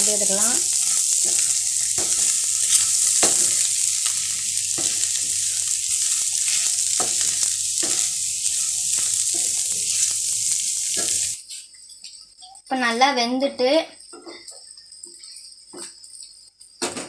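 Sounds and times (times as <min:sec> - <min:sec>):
spatula scraping a pan: 0:00.0 - 0:11.4
food sizzling in a frying pan: 0:00.0 - 0:17.0.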